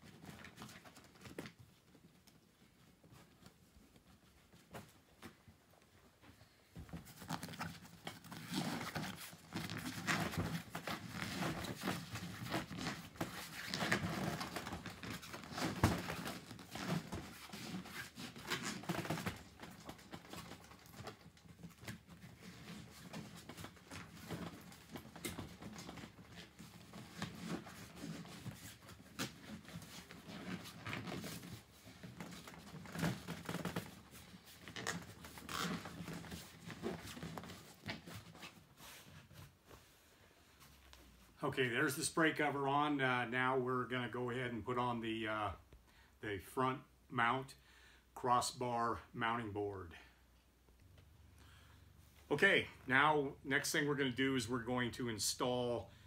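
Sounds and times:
fabric cover rustling: 2.6s - 41.4s.

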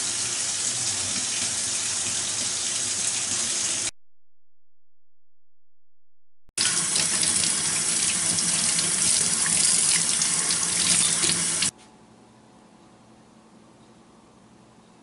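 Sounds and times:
tap water running into sink: 6.6s - 11.7s.

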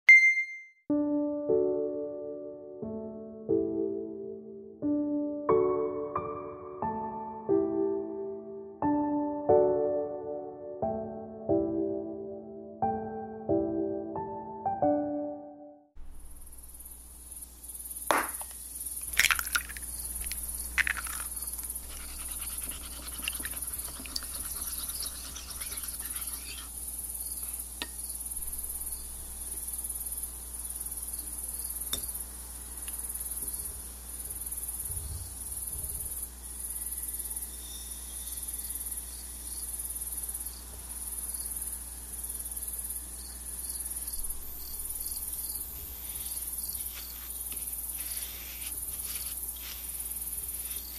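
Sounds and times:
crickets chirping: 16.0s - 50.9s.

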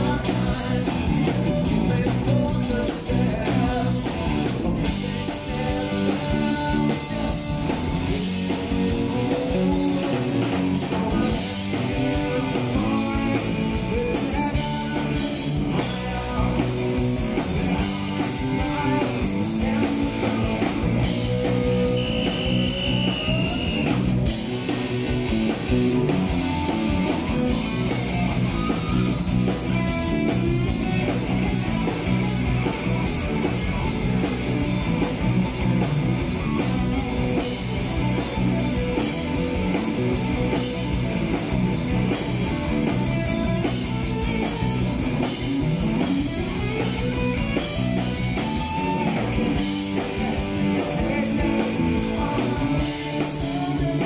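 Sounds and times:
bass guitar: 0.0s - 54.0s
drum kit: 0.0s - 54.0s
electric guitars: 0.0s - 54.0s.

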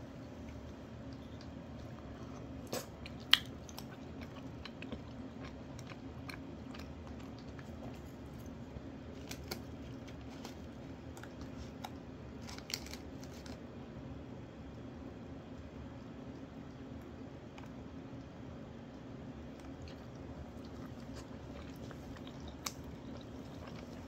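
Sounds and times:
low steady hum: 0.0s - 24.0s
eating crunches: 0.4s - 13.6s, 19.5s - 24.0s.

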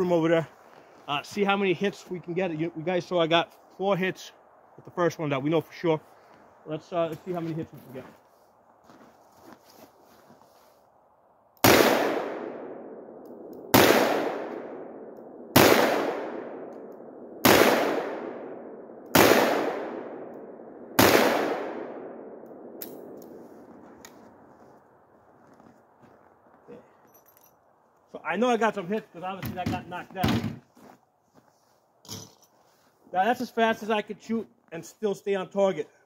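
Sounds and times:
revolver gunshots with echo: 11.6s - 23.2s.

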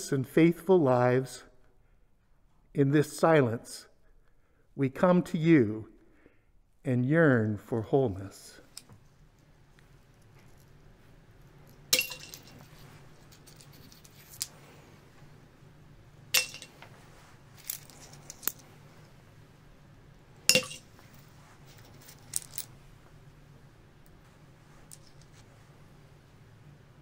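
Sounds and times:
glass clinking in a carafe: 20.5s - 20.9s.

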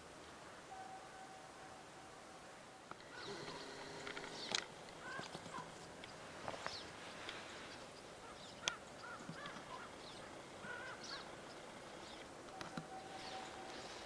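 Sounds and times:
birds chirping: 2.9s - 14.0s.

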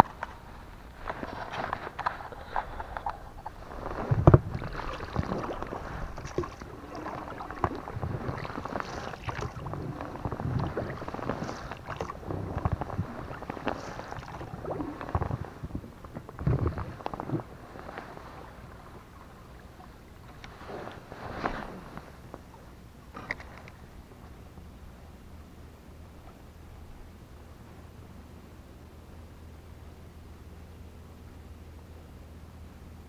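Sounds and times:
oar strokes: 0.0s - 23.8s
oars knocking against hull: 1.1s - 18.0s.

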